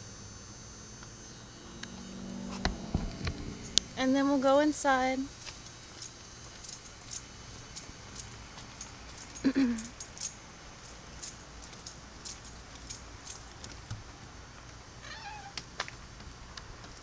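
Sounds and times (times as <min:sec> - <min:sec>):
cat meowing: 0:15.0 - 0:15.6.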